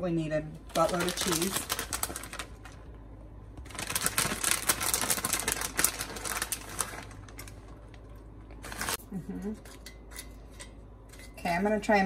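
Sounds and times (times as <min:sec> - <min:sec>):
plastic bag crinkling: 0:00.6 - 0:02.9, 0:03.6 - 0:09.0.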